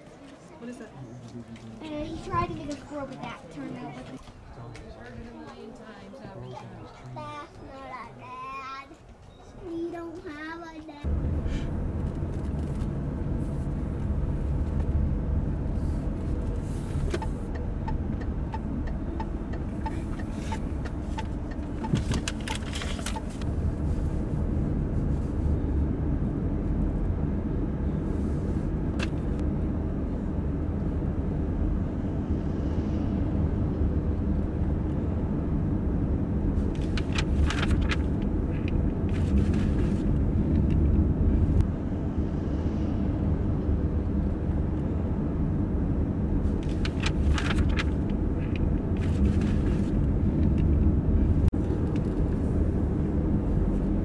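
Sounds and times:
car driving rumble: 0:11.0 - 0:54.0.

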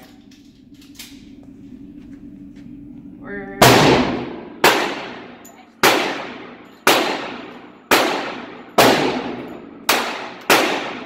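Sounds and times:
pistol shots echoing indoors: 0:03.6 - 0:11.0.

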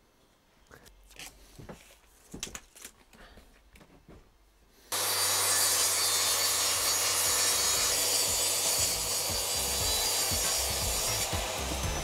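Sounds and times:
track saw cutting wood: 0:04.9 - 0:12.0.

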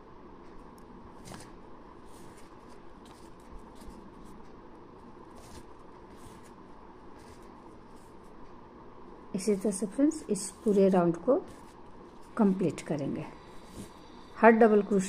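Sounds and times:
steady background hiss: 0:00.0 - 0:15.0
yarn rustling with crochet hook: 0:01.1 - 0:04.6, 0:05.2 - 0:08.4, 0:09.4 - 0:14.2.

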